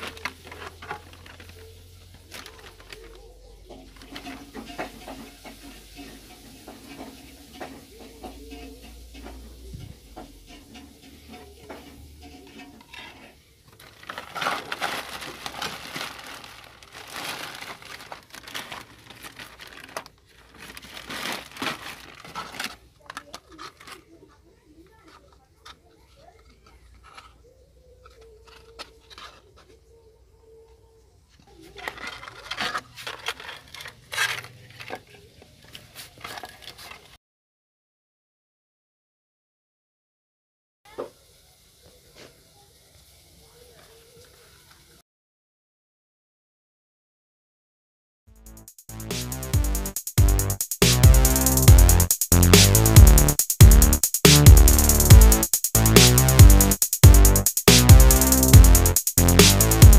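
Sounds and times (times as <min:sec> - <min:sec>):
plastic and paper rustling: 0:00.0 - 0:09.4, 0:11.3 - 0:30.0, 0:31.3 - 0:37.2
objects clicking and knocking: 0:00.0 - 0:09.5, 0:17.3 - 0:29.8, 0:31.4 - 0:37.2.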